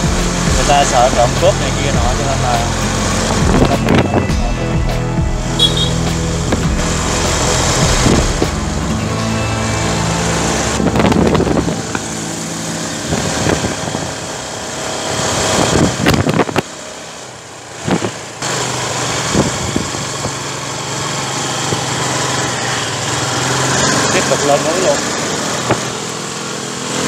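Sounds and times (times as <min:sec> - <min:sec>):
motorbike engine running: 0:00.0 - 0:27.0
wind noise on microphone: 0:03.0 - 0:04.5, 0:06.4 - 0:08.8, 0:10.4 - 0:12.2, 0:13.0 - 0:16.8, 0:17.8 - 0:18.3, 0:19.2 - 0:20.4.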